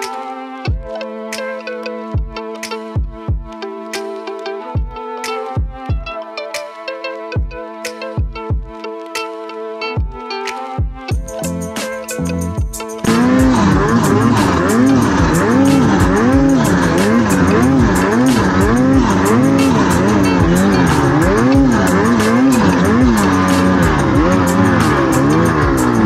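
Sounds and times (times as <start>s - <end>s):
music: 0.0s - 26.0s
snowmobile engine revving: 13.0s - 26.0s.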